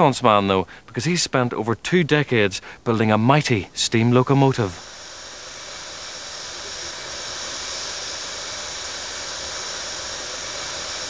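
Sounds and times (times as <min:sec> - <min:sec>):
steam hissing: 0:03.9 - 0:11.0.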